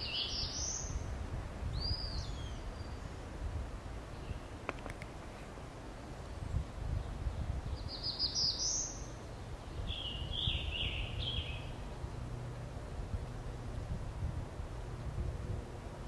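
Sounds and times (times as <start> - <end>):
bird singing slurred notes: 0.0 - 1.1, 6.4 - 12.6.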